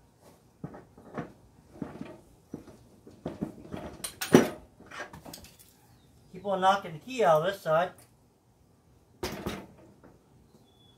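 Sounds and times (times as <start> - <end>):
metal knocks and clanks: 3.2 - 5.5, 9.2 - 10.2.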